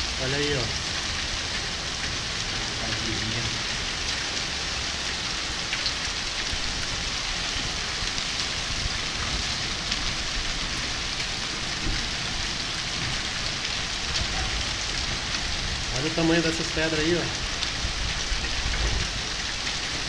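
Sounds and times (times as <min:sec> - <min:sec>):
hailstones ticking on ground: 0:00.0 - 0:20.0
heavy rain downpour: 0:00.0 - 0:20.0.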